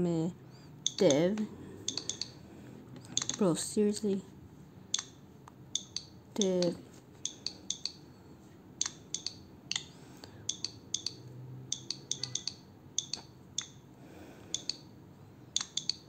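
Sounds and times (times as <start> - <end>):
keyboard key clicks: 1.9 - 2.3, 3.2 - 3.4.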